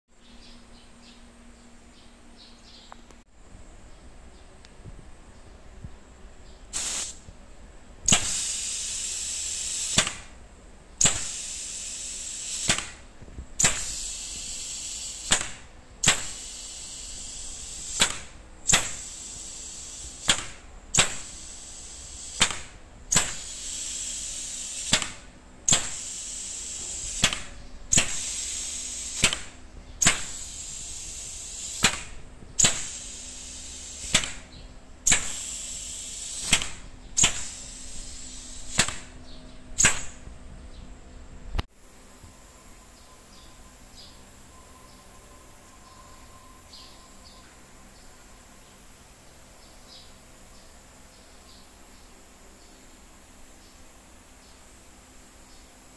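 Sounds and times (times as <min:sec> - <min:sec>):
compressed air hissing: 0:06.7 - 0:07.3, 0:08.1 - 0:10.4, 0:11.0 - 0:39.2, 0:39.8 - 0:40.3
valve actuator clicking: 0:08.1 - 0:10.4, 0:11.0 - 0:13.0, 0:13.6 - 0:34.5, 0:35.1 - 0:39.1, 0:39.8 - 0:40.2.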